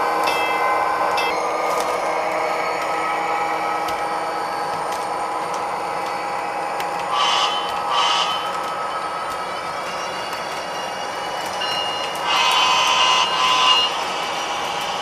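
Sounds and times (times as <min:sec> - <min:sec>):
model train humming on track: 0:00.0 - 0:15.0
model train horn blasts: 0:07.2 - 0:08.4, 0:12.3 - 0:13.9.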